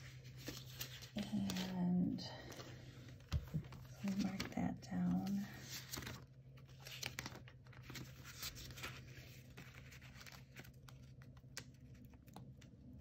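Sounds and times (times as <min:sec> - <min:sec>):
sticker sheets rustling: 0:00.0 - 0:12.6.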